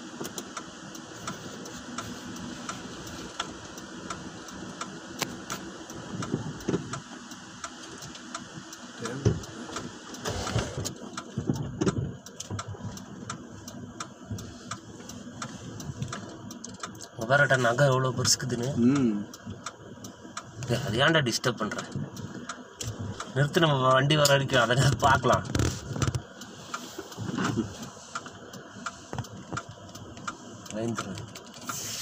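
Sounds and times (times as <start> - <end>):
vehicle engine idling: 0.0 - 32.0
low irregular thuds: 9.2 - 13.1.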